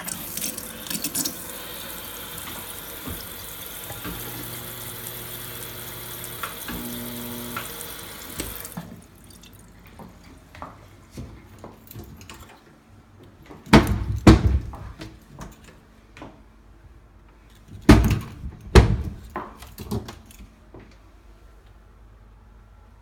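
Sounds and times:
cabinet doors banging shut: 13.7s - 15.0s, 17.9s - 19.4s.

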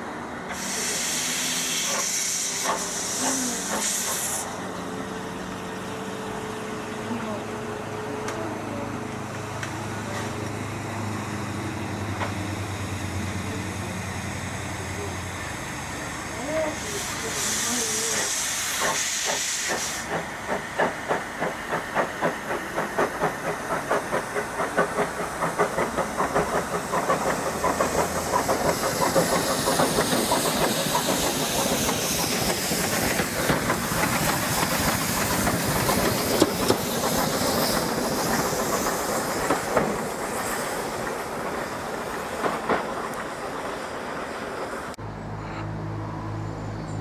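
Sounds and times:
steam locomotive exhaust chuffs: 0.4s - 5.6s, 9.6s - 45.0s
steam hissing from drain cocks: 0.5s - 4.5s, 16.4s - 41.3s.

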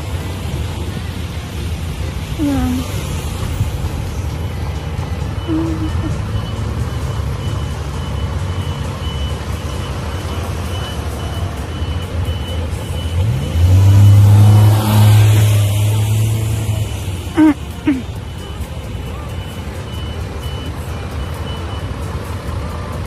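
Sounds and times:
traffic rumble: 0.0s - 23.0s
reversing alarm beeping: 5.2s - 16.1s, 18.2s - 22.4s
vehicle engine revving close by: 12.7s - 17.5s.

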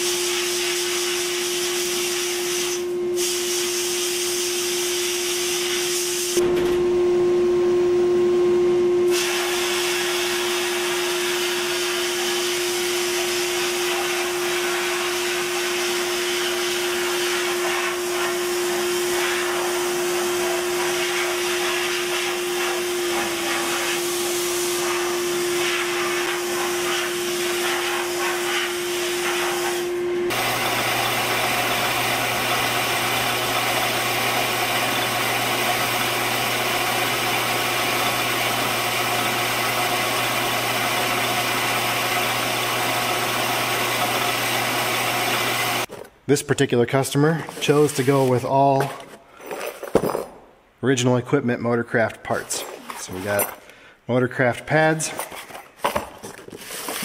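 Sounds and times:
abrasive blast nozzle hissing: 0.0s - 6.4s, 9.1s - 45.9s
steady hum: 6.4s - 9.1s.

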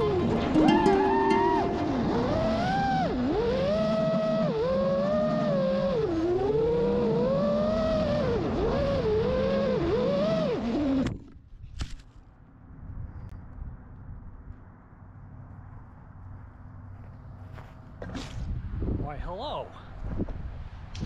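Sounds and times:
drone motors whining: 0.0s - 11.4s.

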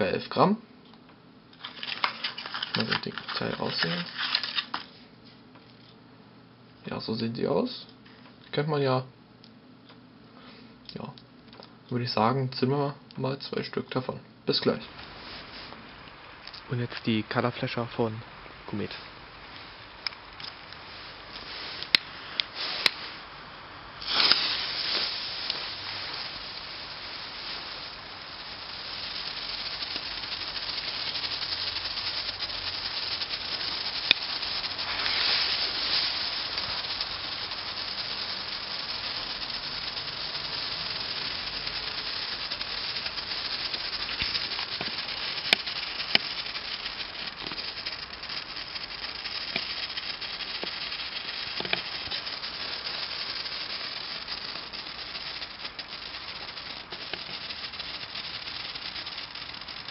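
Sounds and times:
strobe fireworks fizzing crackle: 1.6s - 4.9s, 14.5s - 59.9s
sharp clicks: 28.5s - 59.9s.

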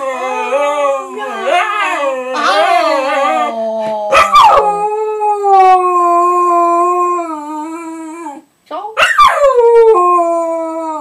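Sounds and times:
dog howling: 0.0s - 8.4s.

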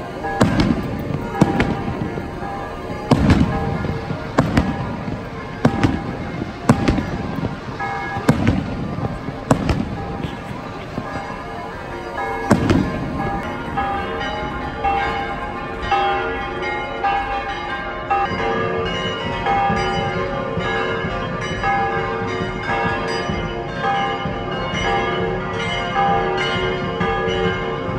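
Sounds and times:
church bells ringing: 0.0s - 27.9s
firework bang: 0.3s - 11.3s, 12.4s - 13.5s.

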